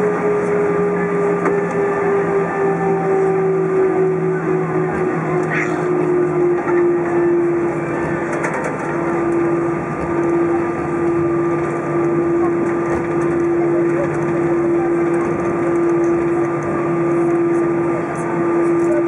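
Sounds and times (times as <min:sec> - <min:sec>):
constant whine: 0:00.0 - 0:19.0
jet engines humming at idle: 0:00.0 - 0:19.0.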